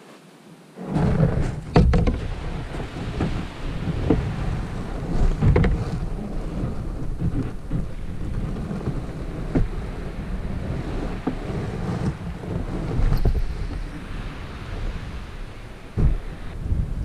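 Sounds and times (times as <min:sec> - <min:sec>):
kayak hull grinding over gravel: 0:00.8 - 0:17.0
knocks against kayak hull: 0:00.9 - 0:09.9, 0:11.1 - 0:13.8, 0:16.0 - 0:16.5.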